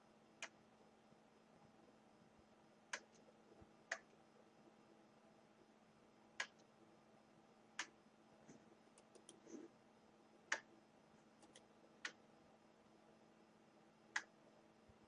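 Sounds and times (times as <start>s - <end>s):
faint steady hum: 0.0s - 15.0s
faint ticks: 6.4s - 6.7s, 14.1s - 14.3s
sharp clicks: 9.0s - 9.4s, 11.4s - 12.2s.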